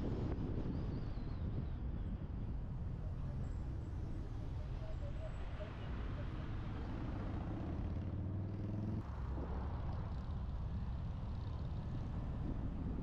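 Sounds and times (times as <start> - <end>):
road noise: 3.3 - 13.0.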